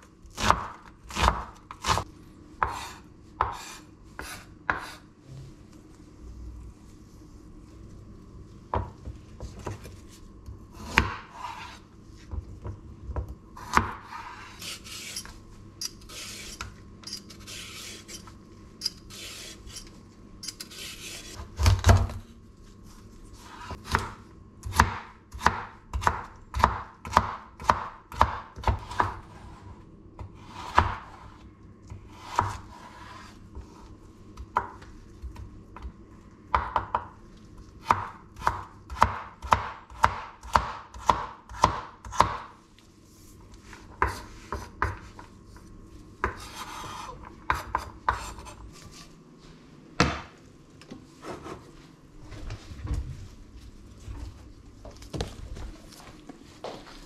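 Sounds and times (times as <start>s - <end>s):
knife chopping on wooden board: 0.3s - 2.0s, 2.6s - 5.0s, 10.8s - 11.8s, 23.6s - 29.2s, 32.2s - 33.3s, 37.8s - 42.5s
knife scraping board: 2.6s - 5.1s, 10.8s - 11.8s, 13.6s - 21.5s, 23.4s - 24.0s, 32.1s - 33.9s, 46.2s - 49.1s, 51.2s - 51.7s.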